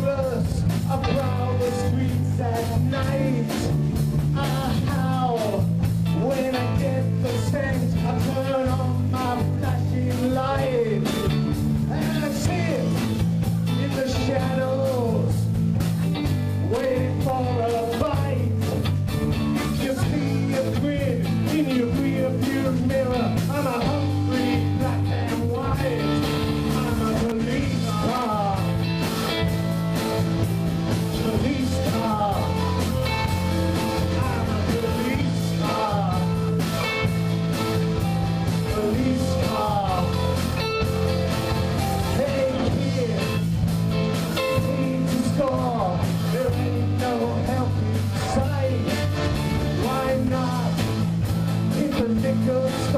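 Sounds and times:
bass guitar: 0:00.0 - 0:52.9
drum kit: 0:00.0 - 0:52.9
electric guitars: 0:00.0 - 0:52.9
man singing: 0:00.0 - 0:52.9.

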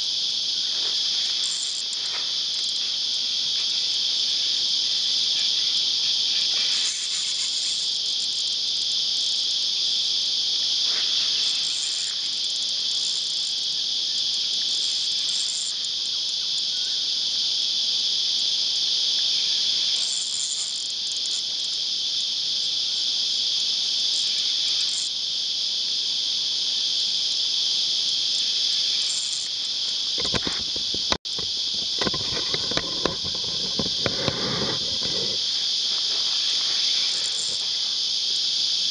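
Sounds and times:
cicadas buzzing: 0:00.0 - 0:38.9
rustling: 0:30.2 - 0:38.0.

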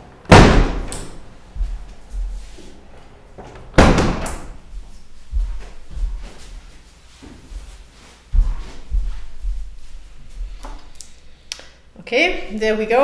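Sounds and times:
window slamming shut: 0:00.3 - 0:01.2, 0:03.7 - 0:04.5.

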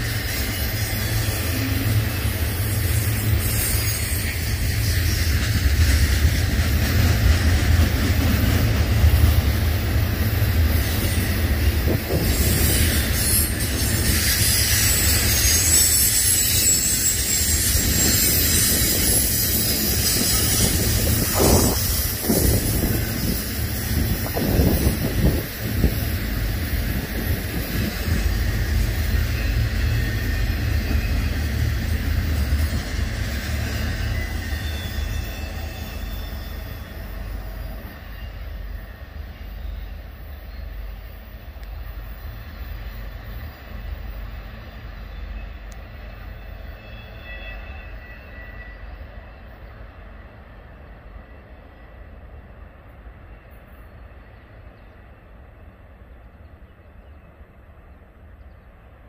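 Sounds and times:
high-pitched wheel squeals: 0:00.0 - 0:05.4, 0:12.1 - 0:25.3, 0:27.8 - 0:38.7, 0:45.4 - 0:49.3
train rumbling over rails: 0:00.0 - 0:59.0.

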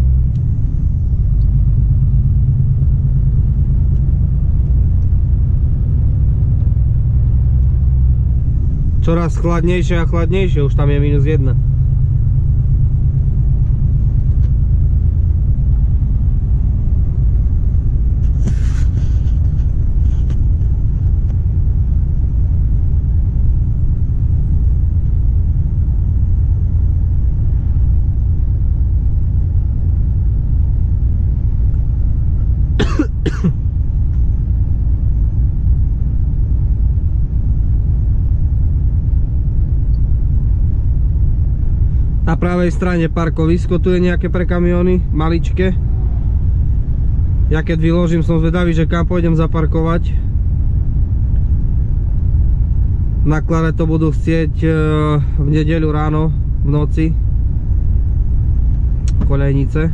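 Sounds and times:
truck engine and road rumble: 0:00.0 - 0:59.9
man coughing: 0:32.8 - 0:33.6.

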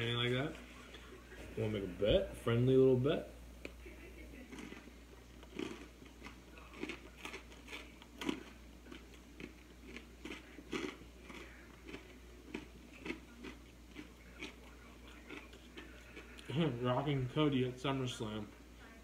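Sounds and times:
chewing crunchy food: 0:04.4 - 0:16.8.

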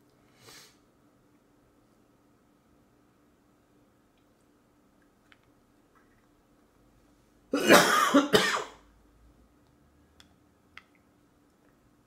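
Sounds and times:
person coughing: 0:07.5 - 0:08.8.

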